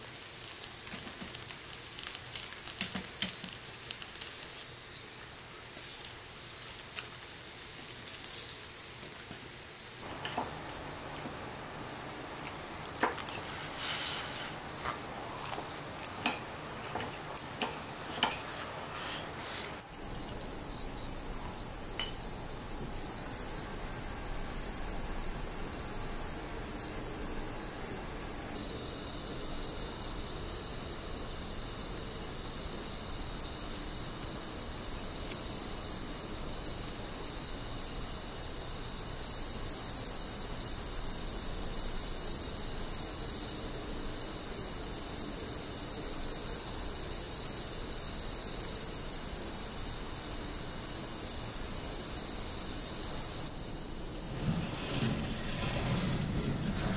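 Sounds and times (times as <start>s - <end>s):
crickets and night insects trilling: 0.0s - 17.5s, 19.5s - 56.9s.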